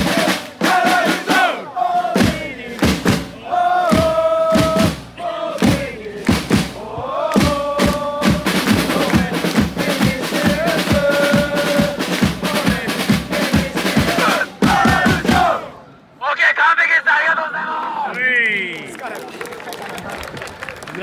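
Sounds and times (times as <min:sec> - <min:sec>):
drum beats: 0:00.0 - 0:15.7
group singing a chant: 0:00.0 - 0:15.8.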